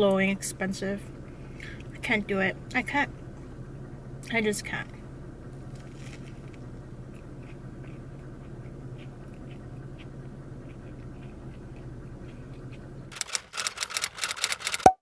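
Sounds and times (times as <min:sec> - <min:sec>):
steady low hum: 0:00.0 - 0:14.5
chewing sandwich: 0:05.6 - 0:13.2
crisp crunches: 0:05.7 - 0:06.6.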